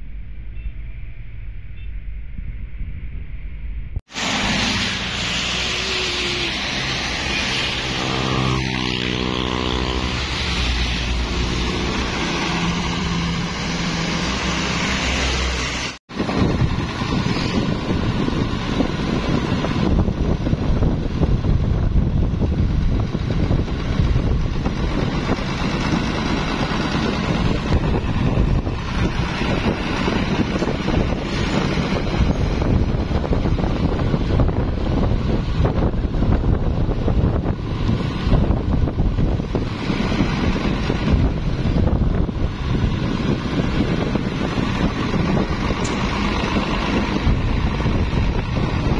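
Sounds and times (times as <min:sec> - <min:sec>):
diesel truck engine: 0:04.1 - 0:48.9
wind buffeting microphone: 0:16.1 - 0:48.9.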